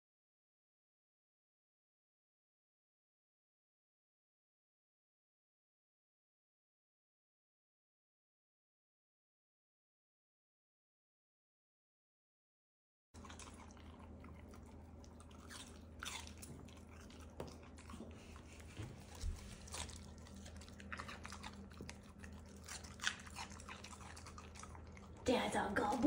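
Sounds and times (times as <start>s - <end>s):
dog crunching vegetable: 13.2s - 26.0s
low steady hum: 13.2s - 26.0s.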